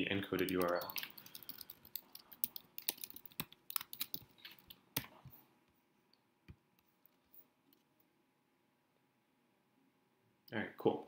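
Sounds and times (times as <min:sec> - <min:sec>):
typing on keyboard: 0:00.3 - 0:05.1.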